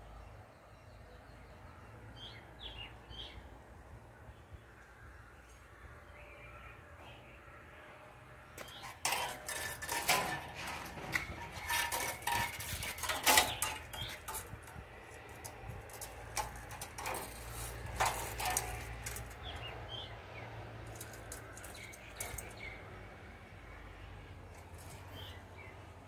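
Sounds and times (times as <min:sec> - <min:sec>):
metal rack clinking: 0:08.6 - 0:20.1, 0:20.8 - 0:22.8.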